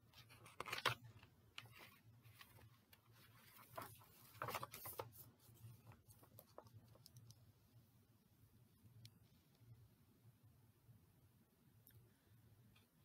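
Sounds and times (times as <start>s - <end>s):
paper card rustling: 0.1s - 7.3s.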